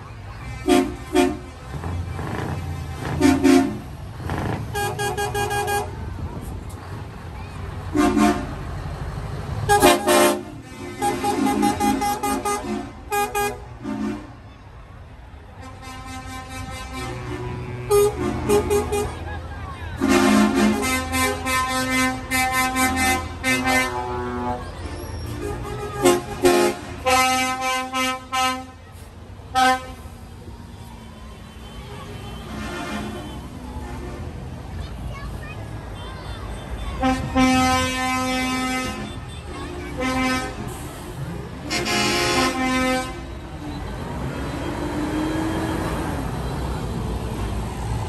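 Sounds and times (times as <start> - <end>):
truck engines rumbling: 0.0 - 48.0
tractor horn toot: 3.0 - 3.9, 4.7 - 6.0, 9.7 - 14.4, 15.6 - 19.3, 20.0 - 24.6, 25.2 - 28.8, 29.5 - 30.0, 31.8 - 34.2, 36.7 - 41.0, 41.6 - 43.4
lorry air horn toots: 37.0 - 39.3, 39.9 - 41.0, 41.6 - 43.3.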